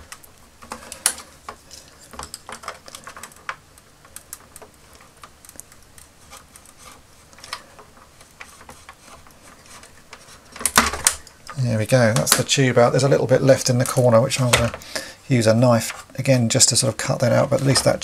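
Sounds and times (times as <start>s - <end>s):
scalpel clicking and scratching plastic: 0.0s - 12.5s.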